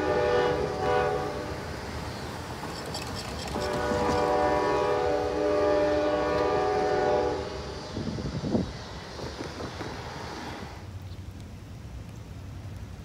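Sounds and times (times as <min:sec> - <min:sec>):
locomotive air horn blast: 0:00.0 - 0:01.9, 0:03.5 - 0:08.0
road traffic passing: 0:00.0 - 0:13.0.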